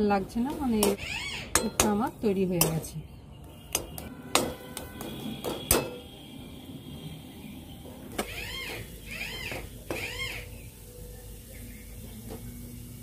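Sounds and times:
metal spatula scraping metal pan: 0:00.4 - 0:02.9.

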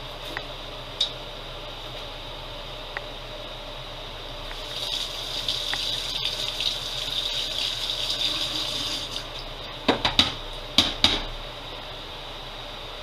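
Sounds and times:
kitchen tap running: 0:04.6 - 0:09.4.

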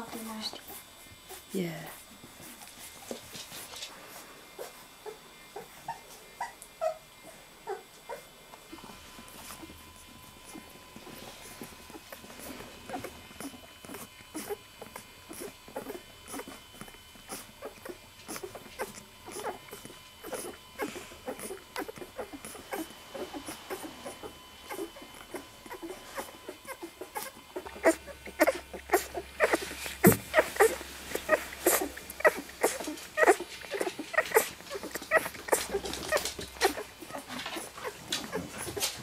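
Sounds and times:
puppies suckling: 0:00.0 - 0:39.0
puppy squeaks: 0:21.3 - 0:38.8.

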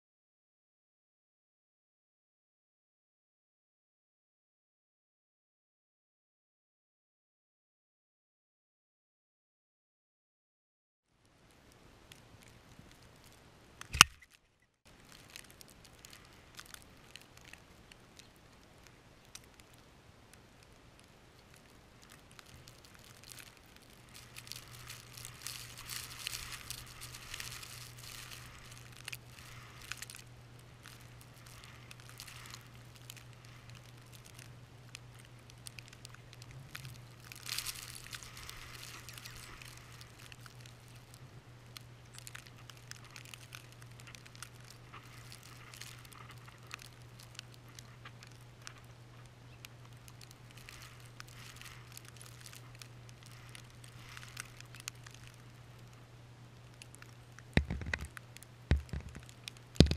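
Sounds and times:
snow pattering against camera: 0:22.0 - 0:34.4, 0:35.0 - 0:41.2, 0:42.1 - 0:48.9.

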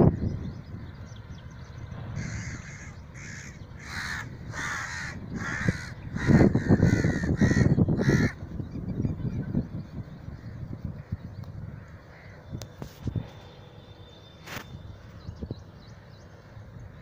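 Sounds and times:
low rumble: 0:00.0 - 0:07.8
crows cawing: 0:02.2 - 0:08.4, 0:11.6 - 0:12.5.

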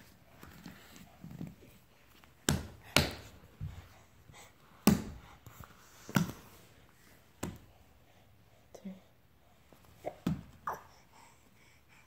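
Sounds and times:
hands slapping wooden floor: 0:02.4 - 0:03.9, 0:04.8 - 0:06.6, 0:07.4 - 0:07.7.

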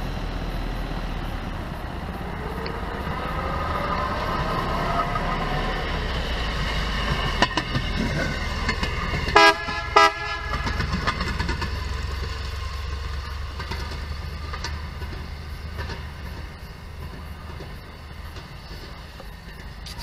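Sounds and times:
railroad speeder running on rails: 0:00.0 - 0:20.0
horn toots: 0:09.3 - 0:11.5.

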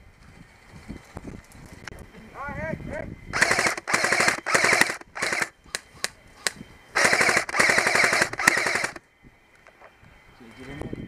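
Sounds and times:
airsoft rifle firing: 0:03.4 - 0:05.8, 0:07.0 - 0:09.0.

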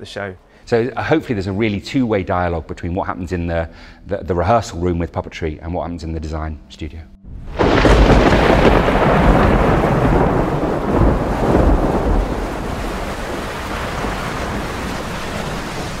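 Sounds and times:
thunder rumbling: 0:07.3 - 0:16.0
steady rain: 0:07.5 - 0:16.0.

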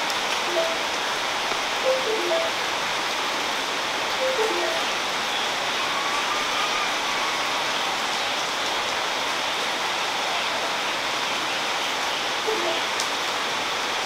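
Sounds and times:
short musical notes: 0:00.5 - 0:01.0, 0:01.8 - 0:02.7, 0:04.2 - 0:05.0.

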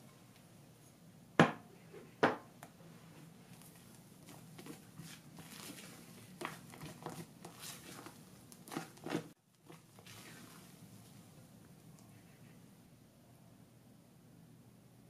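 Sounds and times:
spatula folding batter in glass bowl: 0:03.5 - 0:10.7.

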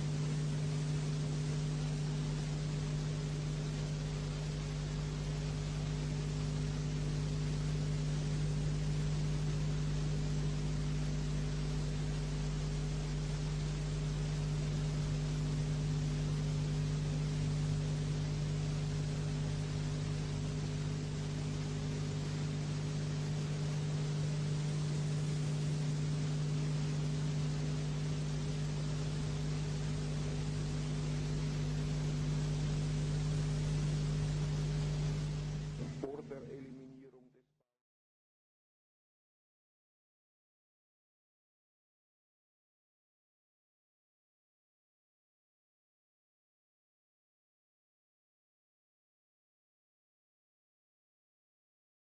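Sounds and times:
constant hiss: 0:00.0 - 0:37.1
steady low hum: 0:00.0 - 0:37.4.

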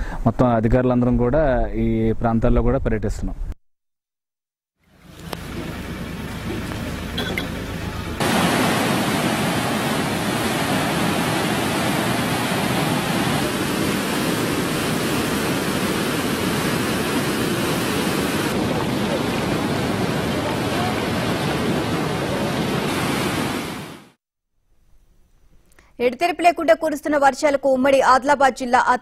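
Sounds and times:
floodwater rushing: 0:04.8 - 0:24.2.

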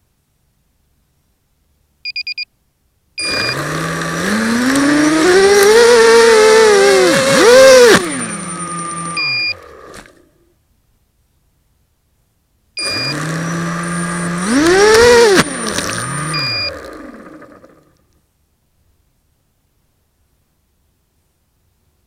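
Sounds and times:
short electronic beeps: 0:02.0 - 0:02.5, 0:03.2 - 0:03.7, 0:08.1 - 0:09.7, 0:12.8 - 0:16.8
drone motors whining: 0:03.2 - 0:10.5, 0:12.8 - 0:18.0.

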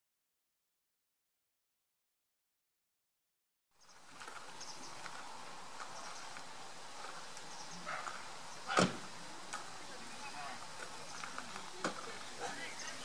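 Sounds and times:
outdoor background noise: 0:03.7 - 0:13.0
geese calling faintly: 0:07.0 - 0:09.1.

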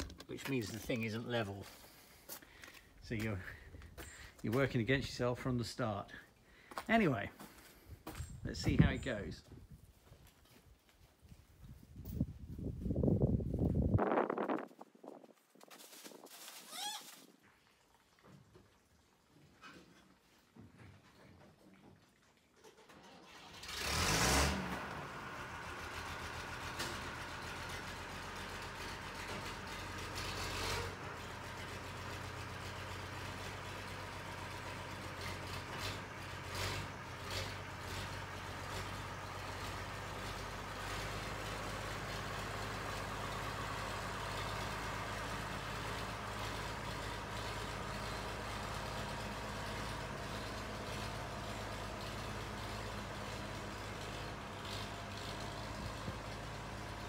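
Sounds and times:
tractor diesel engine running: 0:00.0 - 0:06.2, 0:22.7 - 0:57.0.

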